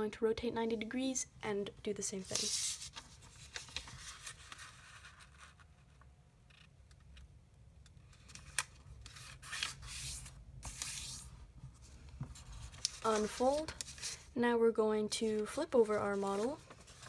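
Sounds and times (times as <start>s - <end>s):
paper rustling and crackling: 2.2s - 5.9s, 11.8s - 14.3s, 15.3s - 17.0s
paper scraping as creased: 12.4s - 14.3s.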